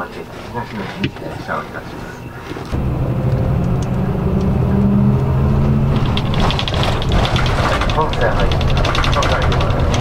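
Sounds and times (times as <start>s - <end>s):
diesel engine accelerating: 2.7s - 10.0s
fast even ticking: 5.9s - 10.0s.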